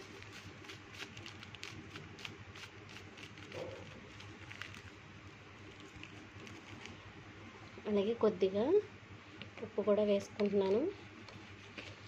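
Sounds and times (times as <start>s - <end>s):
powder rustling over chicken: 0.0s - 7.7s, 10.4s - 12.0s.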